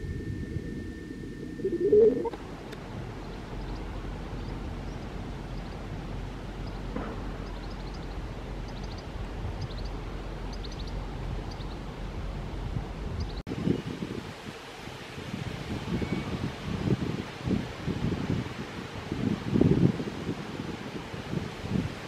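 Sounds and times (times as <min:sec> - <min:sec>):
distant traffic: 0:00.0 - 0:13.4
wind: 0:00.0 - 0:22.0
birds chirping: 0:01.4 - 0:02.4, 0:03.1 - 0:12.0, 0:13.2 - 0:13.5.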